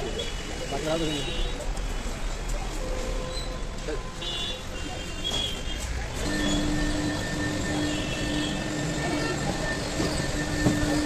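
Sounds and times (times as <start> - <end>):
high machine whine: 6.2 - 11.0
machine hum: 6.2 - 11.0.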